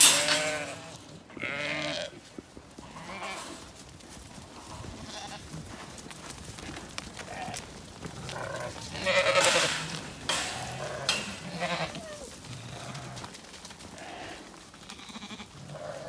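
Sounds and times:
sheep bleating: 0:00.0 - 0:02.2, 0:02.8 - 0:03.6, 0:07.3 - 0:07.6, 0:08.2 - 0:13.3, 0:13.9 - 0:16.0.

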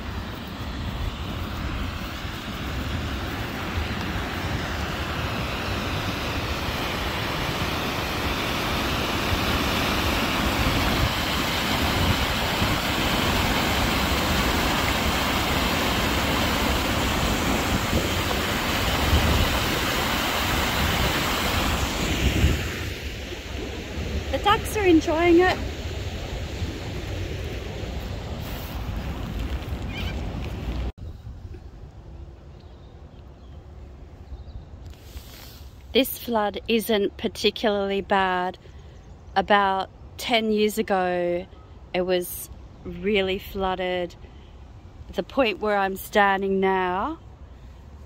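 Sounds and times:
water rushing over a weir: 0:00.0 - 0:30.9
wind buffeting microphone: 0:00.0 - 0:32.8.

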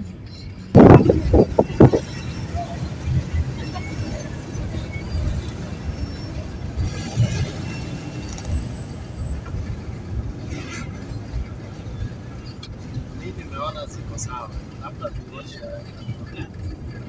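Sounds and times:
road and engine rumble: 0:00.0 - 0:17.0
wind buffeting: 0:00.7 - 0:17.0.

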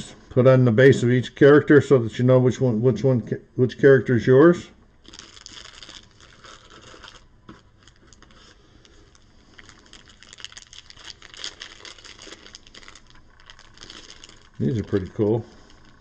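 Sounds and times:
plastic bag crinkling: 0:05.0 - 0:16.0.

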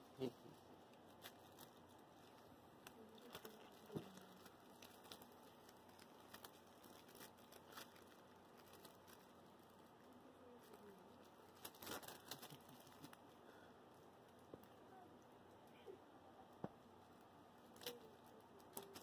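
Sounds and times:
bedsheet and plush toy rustling: 0:00.2 - 0:13.4.

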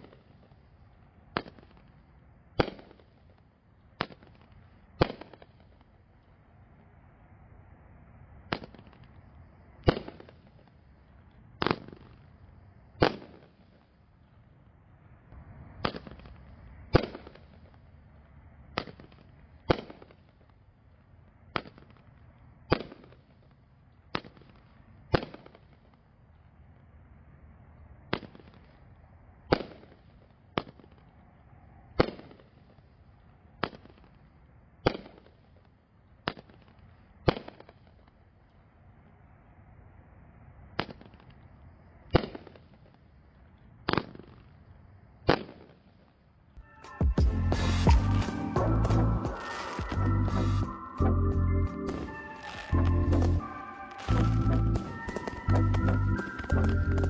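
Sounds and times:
firework bangs: 0:01.3 - 0:02.0, 0:02.6 - 0:05.9, 0:08.4 - 0:09.2, 0:09.8 - 0:10.8, 0:11.6 - 0:12.4, 0:13.0 - 0:13.8, 0:15.8 - 0:17.9, 0:18.8 - 0:20.6, 0:43.9 - 0:44.6, 0:45.2 - 0:45.9, 0:47.3 - 0:50.7, 0:51.9 - 0:57.0.

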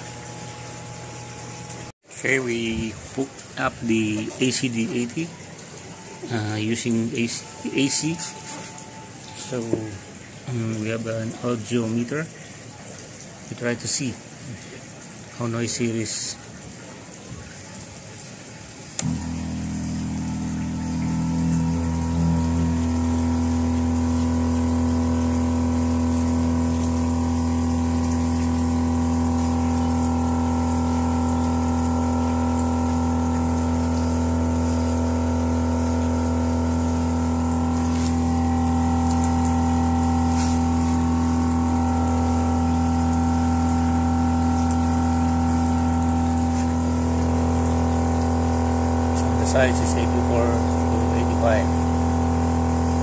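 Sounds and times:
air pump humming: 0:00.0 - 0:12.6, 0:18.8 - 0:53.0.

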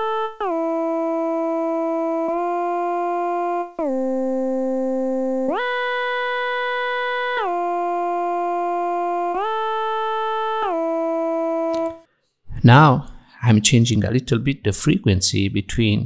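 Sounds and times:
synth playing long sliding notes: 0:00.0 - 0:12.0.

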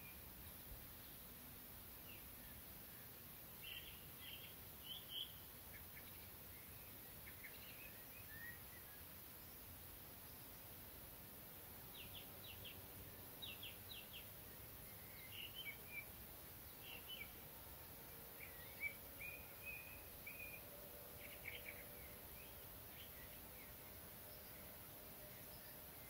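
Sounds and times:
distant songbirds chirping: 0:00.0 - 0:26.0
steady background hiss: 0:00.0 - 0:26.0.

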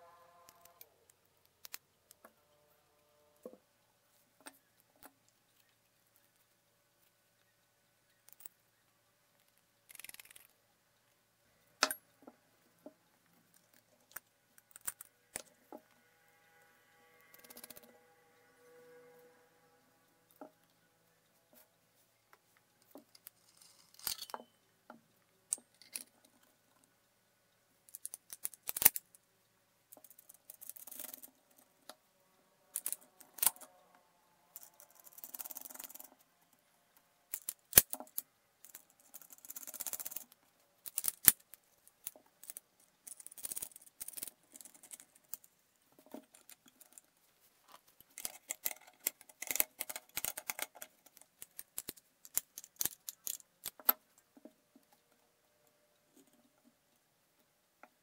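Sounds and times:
metal scraping and rubbing: 0:14.6 - 0:20.7
metallic clicks and clinks: 0:22.9 - 0:24.6, 0:37.3 - 0:45.5, 0:48.0 - 0:54.0.

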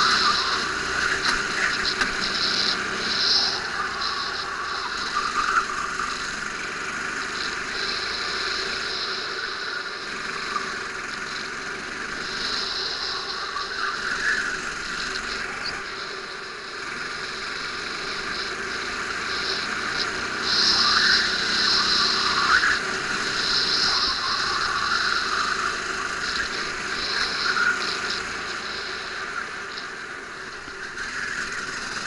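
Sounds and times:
go-kart engine revving: 0:00.0 - 0:32.0.

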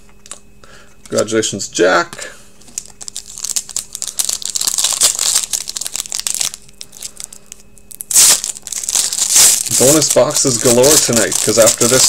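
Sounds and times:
foil wrapper crinkling and tearing: 0:02.8 - 0:12.0.

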